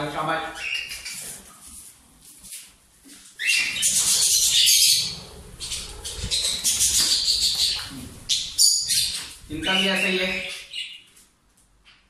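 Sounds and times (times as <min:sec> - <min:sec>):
parrots screeching: 0:00.4 - 0:01.3, 0:03.4 - 0:11.1.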